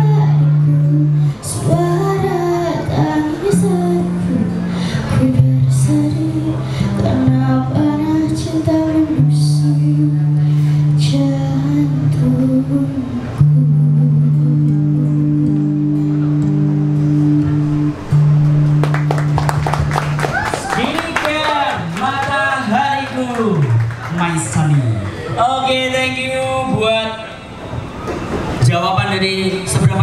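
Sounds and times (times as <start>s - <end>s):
low bass notes: 0.0s - 20.8s
guitar: 0.0s - 30.0s.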